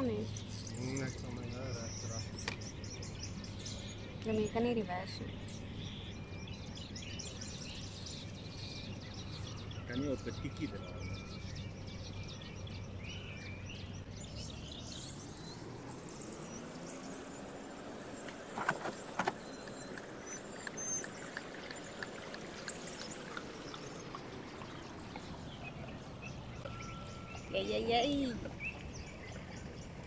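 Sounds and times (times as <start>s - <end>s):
birds calling: 0.0s - 30.0s.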